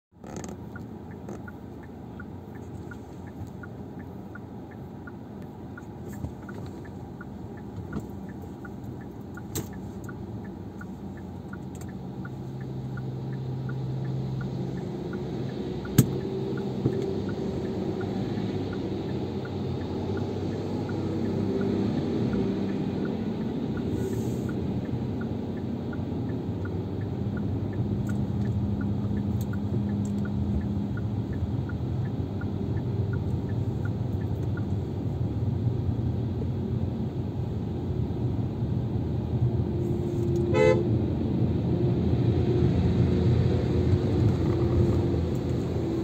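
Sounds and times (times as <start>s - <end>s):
lorry engine hum: 0.1s - 46.0s
tyre and engine rumble: 0.1s - 46.0s
light regular ticking: 0.2s - 36.3s.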